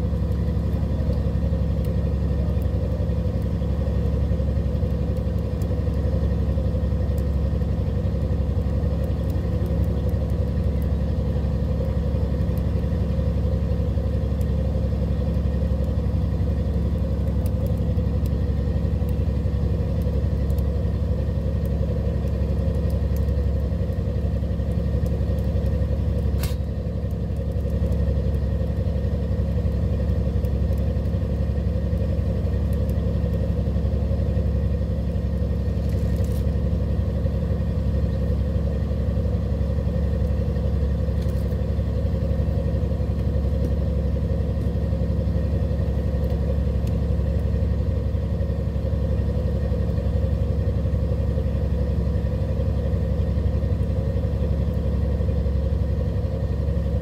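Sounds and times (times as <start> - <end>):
boat engine droning: 0.0 - 57.0
sharp click: 26.3 - 26.7.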